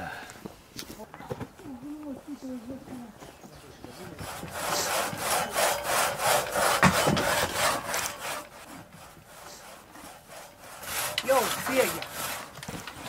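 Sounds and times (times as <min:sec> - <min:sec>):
hand saw cutting through log: 0:04.1 - 0:13.0.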